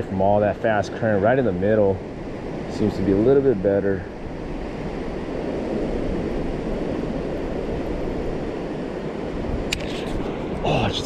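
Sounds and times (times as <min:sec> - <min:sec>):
rushing water roar: 0:00.0 - 0:11.0
wind across microphone: 0:00.0 - 0:11.0.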